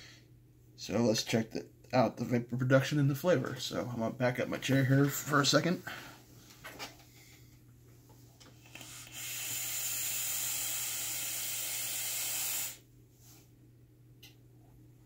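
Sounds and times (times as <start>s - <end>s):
vape coil hissing: 8.8s - 12.8s.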